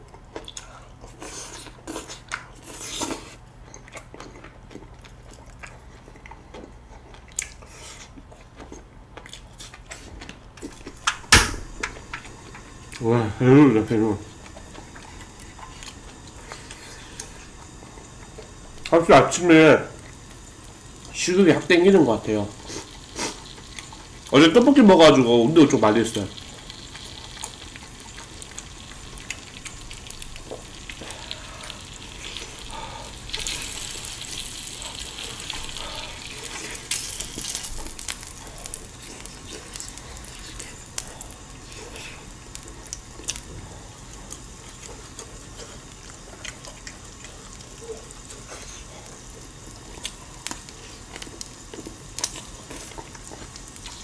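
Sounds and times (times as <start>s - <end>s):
meat sizzling on grill pan: 11.0s - 54.0s.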